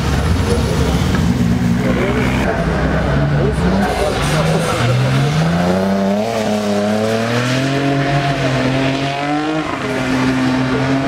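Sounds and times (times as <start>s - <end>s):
car engine at high revs: 0.0s - 11.0s.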